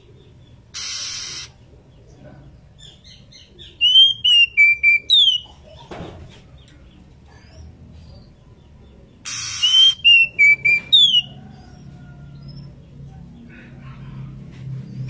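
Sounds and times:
bird calling whistled phrase: 0:09.3 - 0:11.3.

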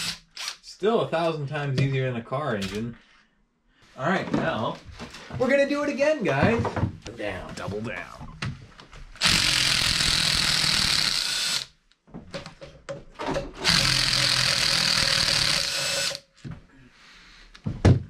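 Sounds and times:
power drill running: 0:09.2 - 0:11.7, 0:13.6 - 0:16.3.

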